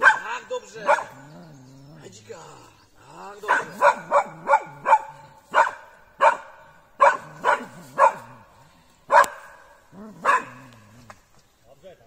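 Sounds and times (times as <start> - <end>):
dog barking: 0.0 - 1.2, 3.4 - 8.5, 9.1 - 10.8.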